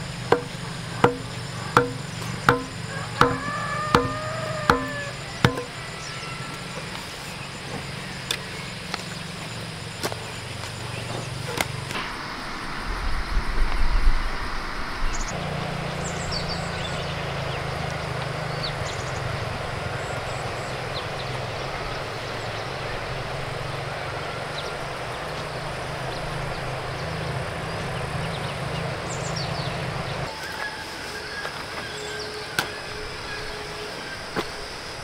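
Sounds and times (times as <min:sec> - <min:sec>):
engine droning: 0:00.0 - 0:35.0
high bird chirps: 0:00.3 - 0:06.8.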